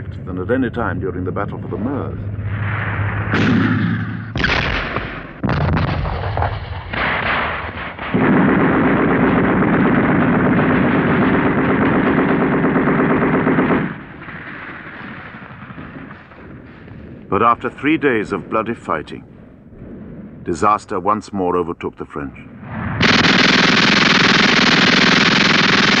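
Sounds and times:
heavy gunshots or blasts: 2.4s - 21.1s, 22.5s - 26.0s
rapid machine-gun fire: 4.4s - 17.0s, 23.0s - 26.0s.

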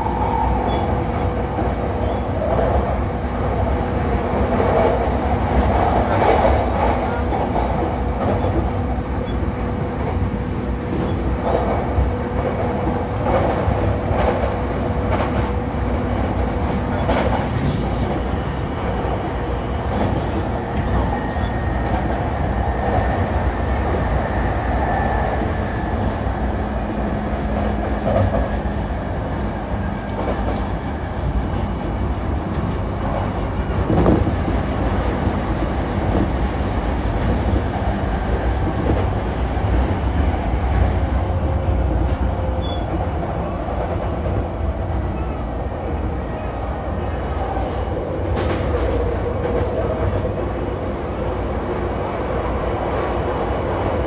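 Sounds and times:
train wheels rumbling on rail: 0.0s - 54.0s
rail-joint clicks: 27.4s - 28.6s, 29.8s - 31.4s.

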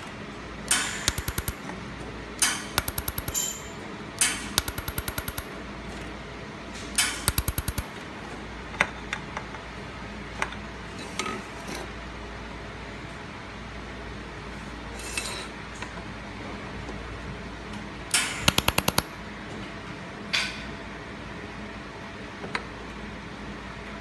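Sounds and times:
laser welder snapping: 0.7s - 1.7s, 2.4s - 3.6s, 4.2s - 5.5s, 7.0s - 7.9s, 18.2s - 19.1s
steady low hum: 0.9s - 1.7s.

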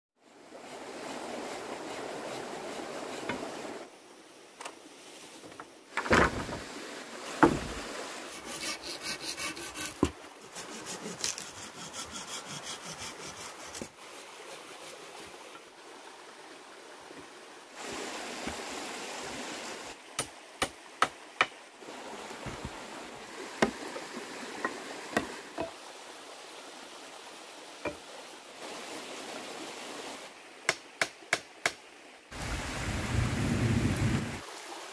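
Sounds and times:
quick sawing or rubbing strokes: 0.7s - 3.9s, 8.2s - 15.4s
sharp knocks on wood: 7.4s - 7.8s.

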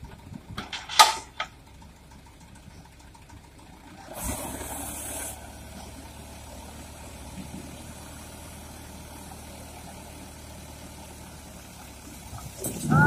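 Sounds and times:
truck engine running: 0.0s - 13.0s
hiss: 4.1s - 5.4s.

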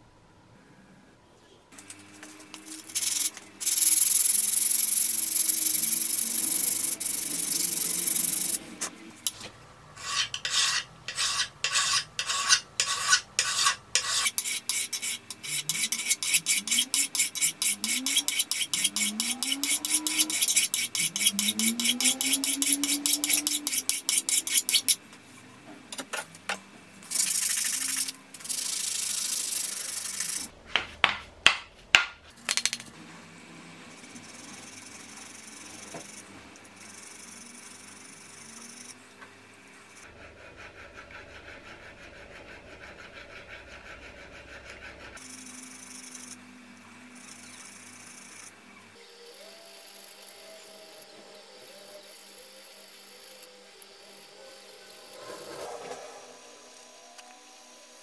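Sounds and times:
file scraping on steel: 10.0s - 25.0s.

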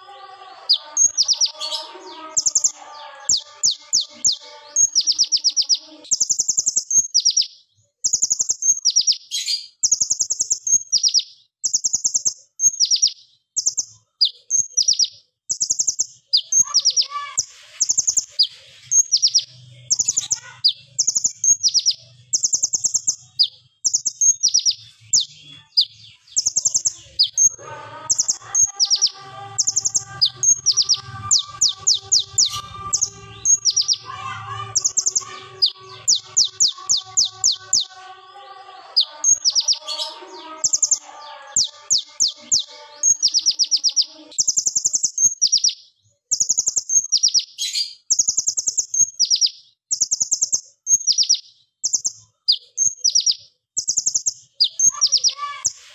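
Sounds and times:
sunbird singing sharp high notes: 15.7s - 45.8s.

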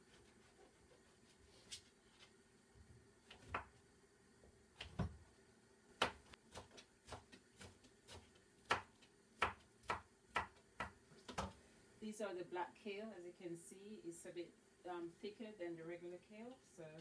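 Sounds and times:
knife chopping on plastic board: 6.0s - 11.6s.

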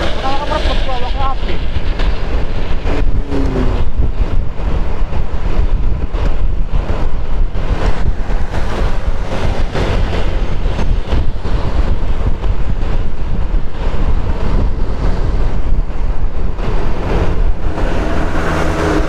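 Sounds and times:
gusting wind on microphone: 0.0s - 19.0s
road noise: 0.0s - 19.0s
scooter engine: 5.9s - 15.5s.

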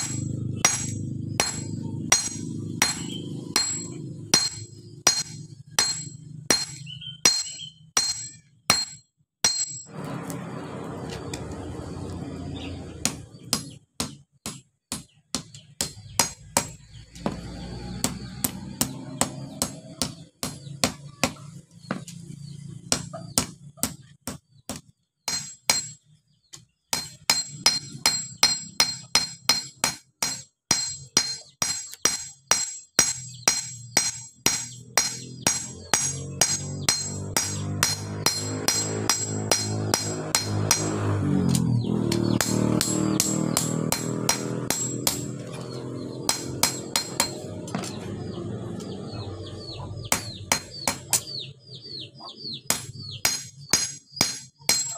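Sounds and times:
hammer striking hot metal on anvil: 0.0s - 9.9s, 25.3s - 26.0s, 26.9s - 47.8s, 50.1s - 51.4s, 52.7s - 54.9s.

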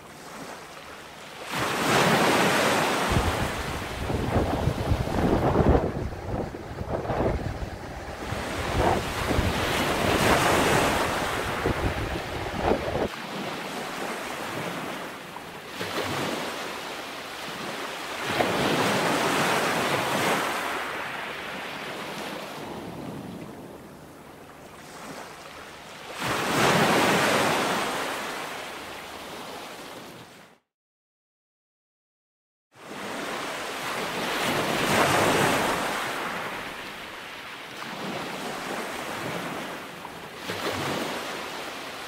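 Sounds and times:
ocean surf breaking: 1.4s - 15.1s
wind buffeting microphone: 3.0s - 13.1s.

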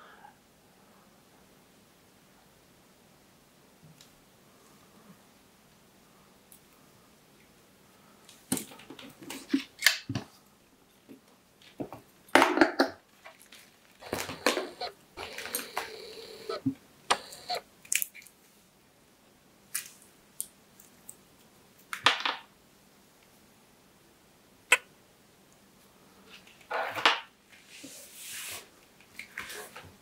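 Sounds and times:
rustling: 13.1s - 18.6s.

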